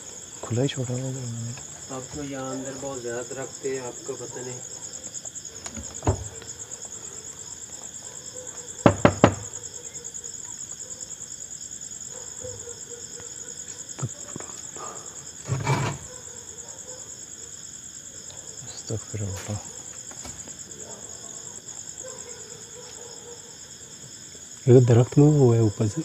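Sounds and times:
crickets chirring: 0.0s - 26.0s
sharp knocks: 8.8s - 9.5s.

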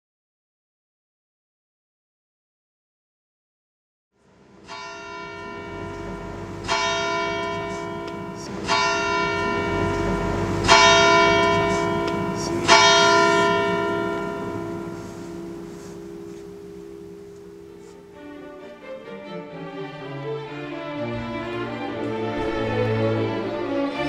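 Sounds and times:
steady low hum: 4.3s - 19.8s
church bell tolling: 4.6s - 18.9s, 21.2s - 24.0s.

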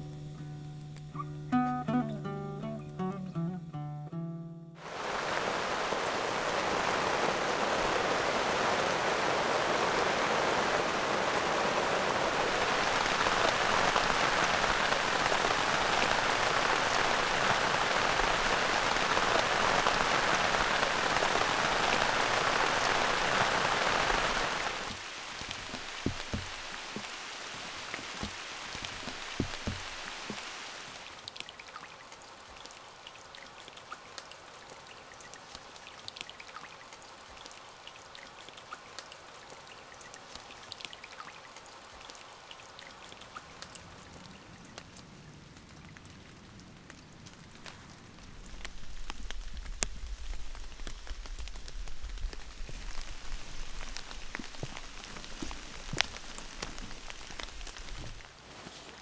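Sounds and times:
rain falling in forest: 0.0s - 59.0s
low thuds: 25.6s - 27.1s, 28.0s - 30.4s.

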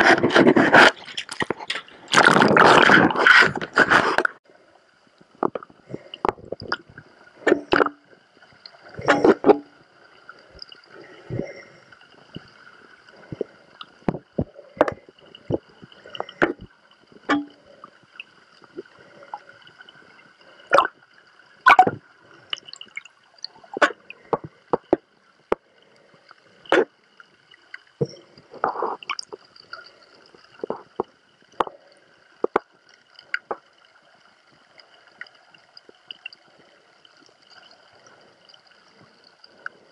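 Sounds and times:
underwater clicks and knocks: 0.0s - 4.4s, 5.4s - 8.0s, 9.0s - 9.8s, 13.3s - 17.6s, 21.7s - 23.1s, 23.8s - 25.6s, 26.7s - 26.9s, 30.5s - 31.8s, 32.4s - 32.7s, 33.3s - 33.7s
faint gurgling water: 0.0s - 39.9s.

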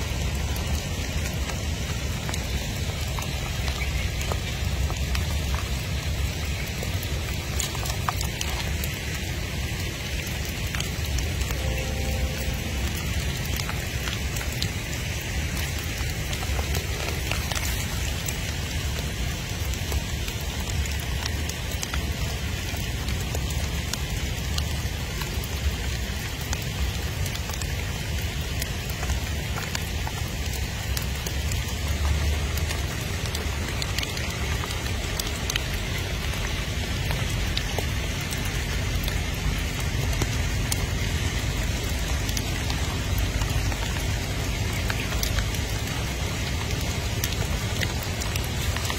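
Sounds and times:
light rain pattering on ground: 0.0s - 48.9s
low rumble: 11.4s - 19.2s.

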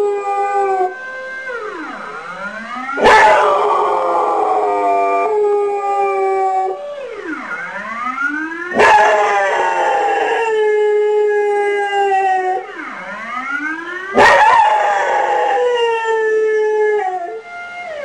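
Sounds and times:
wailing siren alarm: 0.0s - 18.0s
dog howling: 3.0s - 6.8s, 8.7s - 12.6s, 14.2s - 17.4s.

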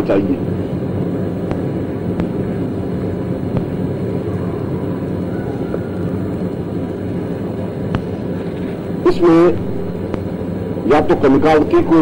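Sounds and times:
faint steady tones: 0.0s - 12.0s
low background rumble and hiss: 0.0s - 12.0s.

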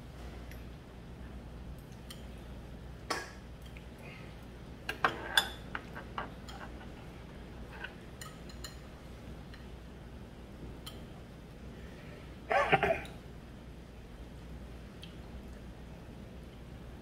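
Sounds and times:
low steady hum: 0.0s - 17.0s
metal chopsticks clinking on plates: 7.8s - 8.8s.

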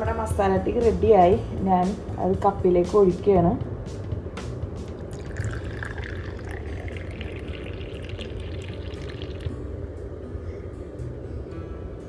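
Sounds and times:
steady low hum: 0.0s - 12.0s
tea pouring into a cup: 5.0s - 9.5s.

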